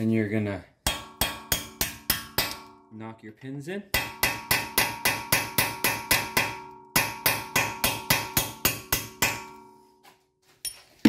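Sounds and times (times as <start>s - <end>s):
hammer striking steel punch: 0.8s - 2.9s, 3.9s - 9.8s.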